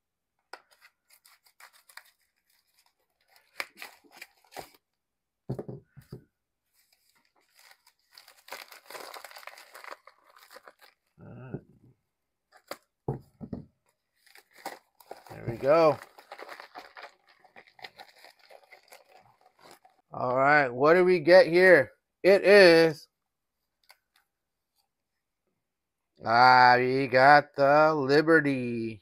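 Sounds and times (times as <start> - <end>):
mailer crinkling and tearing: 0.7 - 4.9, 6.8 - 11.2, 14.0 - 20.1.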